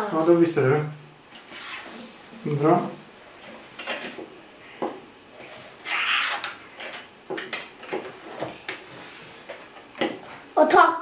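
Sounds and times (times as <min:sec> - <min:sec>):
rustling scrape: 0:01.4 - 0:02.5, 0:08.2 - 0:09.7.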